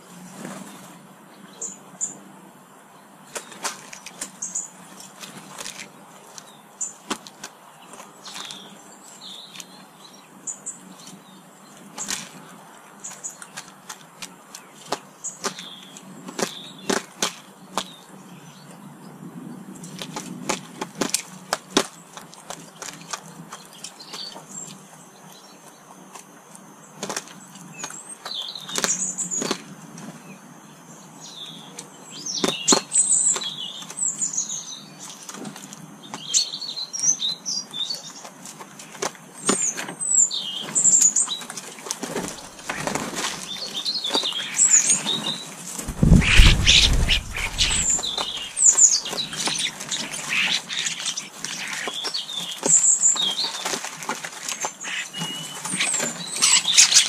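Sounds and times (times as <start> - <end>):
wings flapping: 42.2 - 43.4, 45.8 - 49.5
birds chirping: 42.2 - 53.4
low rumble: 45.9 - 48.5.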